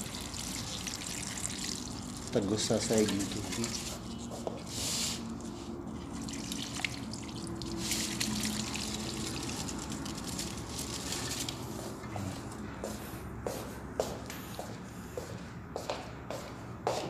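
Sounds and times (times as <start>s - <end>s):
water pouring onto soil: 0.0s - 4.1s, 6.0s - 11.8s.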